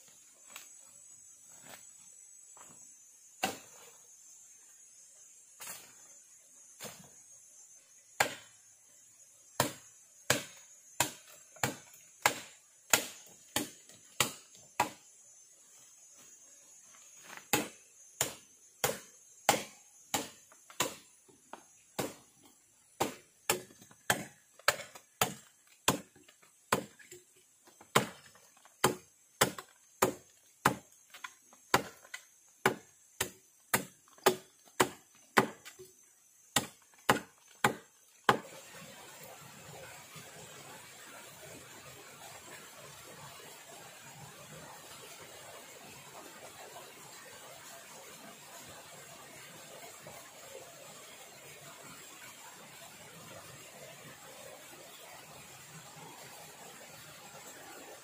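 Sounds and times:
high-pitched hiss: 0.0 - 54.2
blade chopping into wood: 3.4 - 3.8, 8.2 - 8.6, 9.6 - 15.0, 17.3 - 21.1, 22.0 - 22.3, 23.0 - 27.1, 27.8 - 35.9, 36.5 - 38.5.

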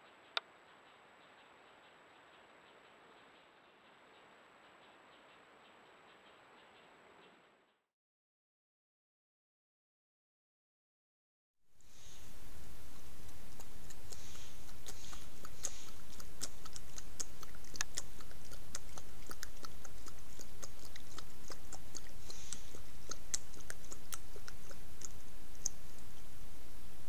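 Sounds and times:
steady background hiss: 0.0 - 7.8, 11.7 - 27.0
kitten lapping water: 12.1 - 26.4.

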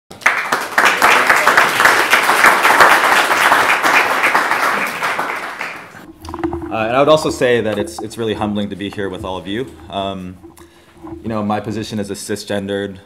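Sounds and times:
audience applauding: 0.1 - 6.1.

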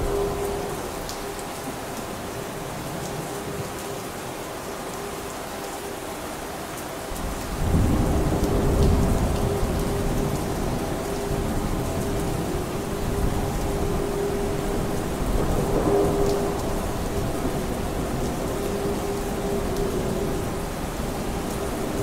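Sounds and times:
heavy steady rain: 0.0 - 22.0
rolling thunder rumble: 7.2 - 22.0.

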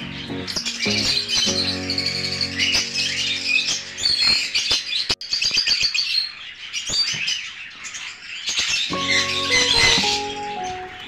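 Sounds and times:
background music: 0.0 - 5.1, 8.9 - 11.0
lovebirds chirping: 0.0 - 11.0.

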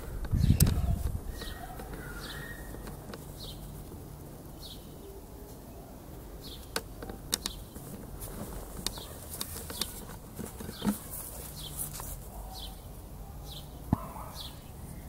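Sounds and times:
bird chirping: 0.0 - 3.8, 4.5 - 8.0, 8.8 - 15.0
rustling thump: 7.7 - 12.2.

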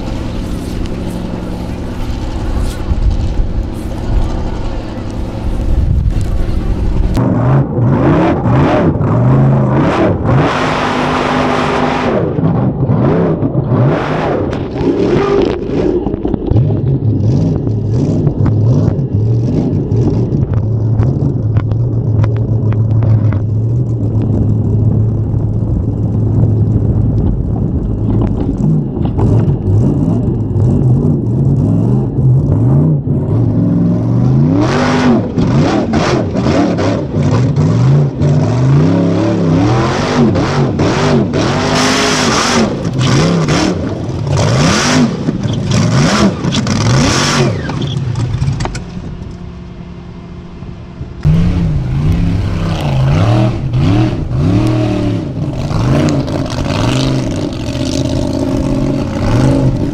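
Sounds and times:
mud and spray rushing bursts: 0.0 - 7.2
buggy engine revving: 0.0 - 49.7, 51.2 - 59.9.

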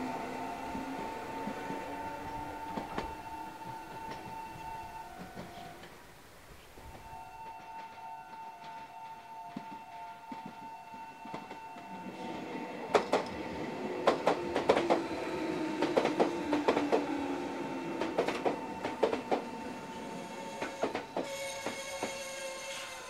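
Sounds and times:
train motor whine: 0.0 - 5.9
train wheels clicking over rail joints: 12.9 - 17.2, 17.9 - 22.4.

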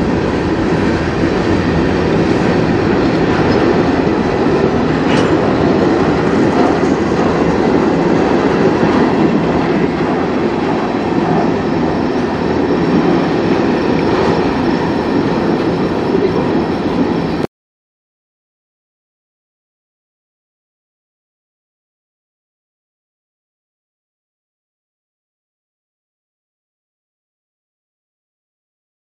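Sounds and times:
freight train rolling past: 0.0 - 17.5
wheels clicking over rail joints: 1.7 - 11.4.

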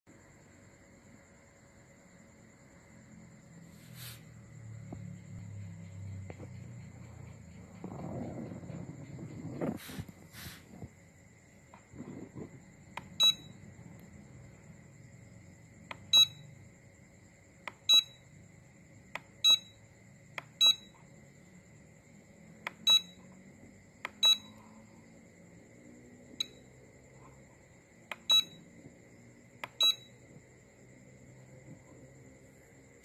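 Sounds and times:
faint electronic whine: 0.1 - 33.0
high-pitched buzzer beeps: 13.0 - 13.6, 15.9 - 16.6, 17.7 - 18.3, 19.4 - 19.8, 20.5 - 21.0, 22.7 - 23.2, 24.1 - 24.6, 26.4 - 26.7, 28.1 - 28.6, 29.6 - 30.2.

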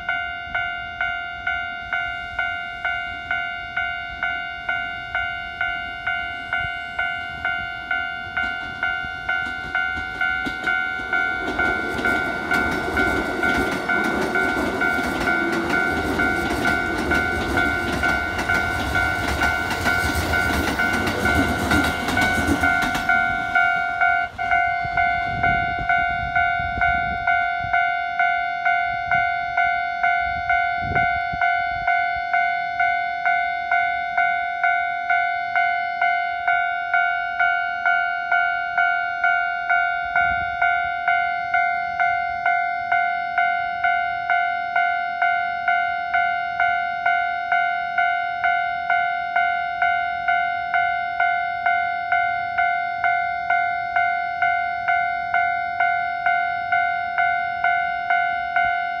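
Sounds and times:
level crossing electronic bell: 0.0 - 59.0
train wheels on rails: 1.5 - 32.0.

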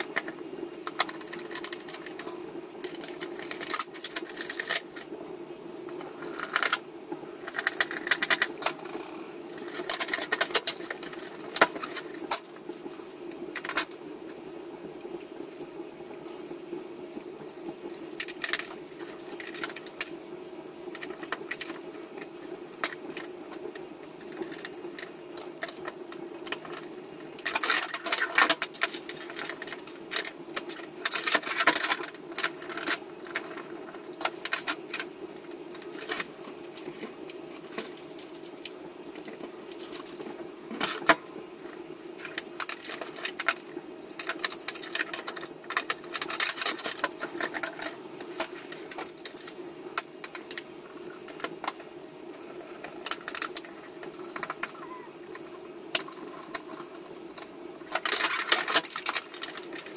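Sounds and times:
hard plastic clicking and rattling: 0.0 - 5.1, 7.4 - 16.4, 35.7 - 59.9
steady low hum: 0.0 - 59.9.

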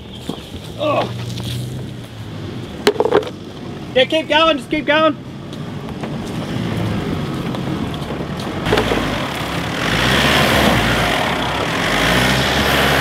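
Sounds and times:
engine working under load: 5.2 - 13.0.

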